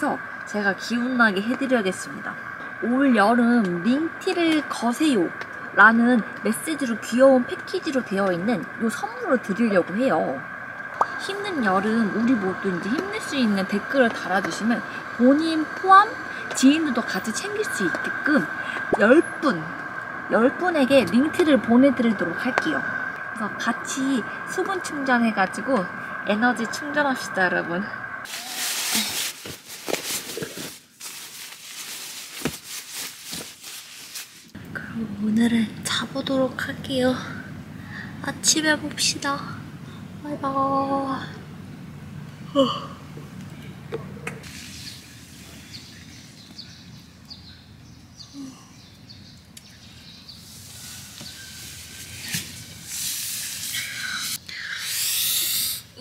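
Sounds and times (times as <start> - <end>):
high hiss: 8.8 - 31.7, 44.4 - 46.4, 50.3 - 56.0
fabric rustling: 28.3 - 34.6.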